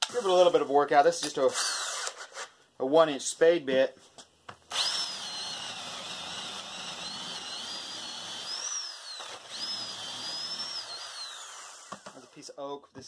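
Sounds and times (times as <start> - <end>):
cordless drill boring into wood: 1.5 - 2.3, 4.7 - 12.4.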